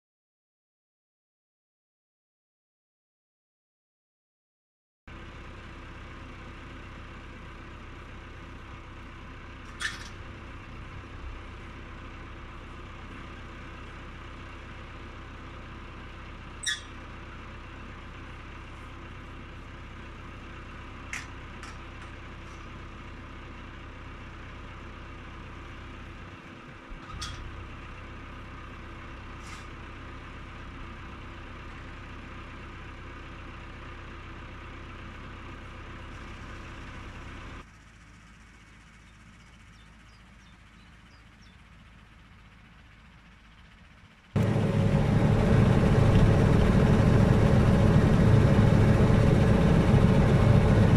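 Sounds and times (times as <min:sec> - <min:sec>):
tractor engine idling: 0:05.1 - 0:50.9.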